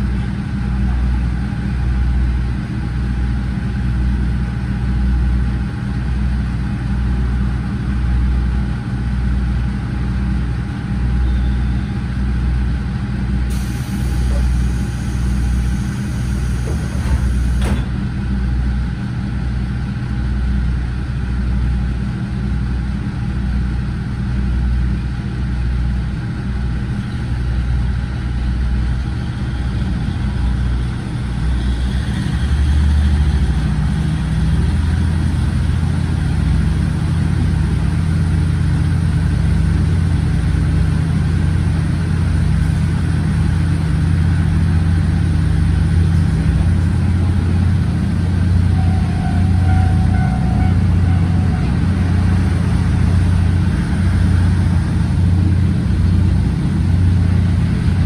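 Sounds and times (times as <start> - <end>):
diesel engine throttling up: 12.1 - 58.0.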